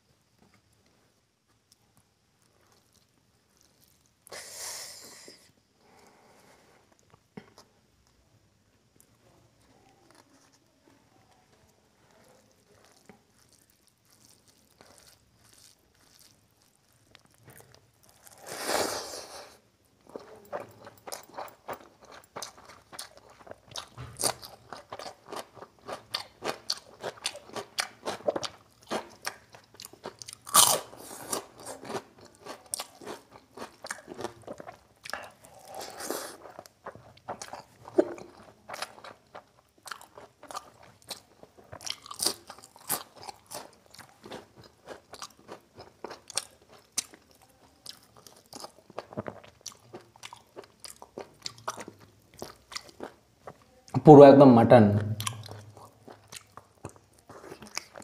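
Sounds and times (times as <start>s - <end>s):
chewing with wet mouth clicks: 12.1s - 18.4s, 20.0s - 53.6s, 55.2s - 58.0s
crunchy bites: 12.2s - 53.2s.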